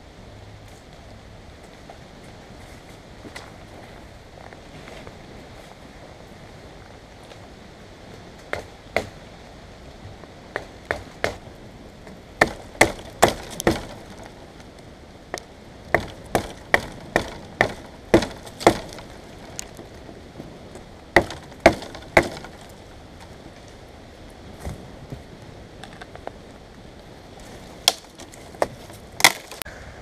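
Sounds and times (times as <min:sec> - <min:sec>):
hard knocks on wood: 0:15.9 - 0:19.0, 0:21.2 - 0:22.6.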